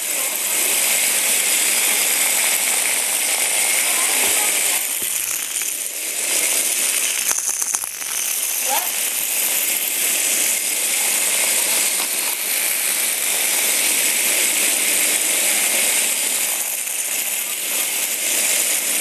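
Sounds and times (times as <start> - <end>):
toy robots buzzing and rattling: 0.0 - 19.0.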